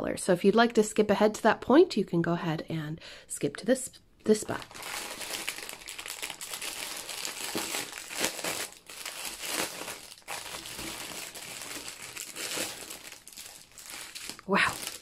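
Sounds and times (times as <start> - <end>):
plastic packaging crinkling: 4.5 - 15.0.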